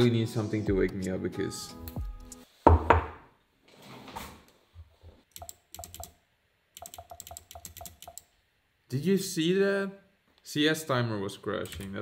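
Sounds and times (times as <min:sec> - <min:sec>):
computer keyboard typing: 0:05.3 - 0:06.2, 0:06.8 - 0:08.3, 0:11.6 - 0:12.0.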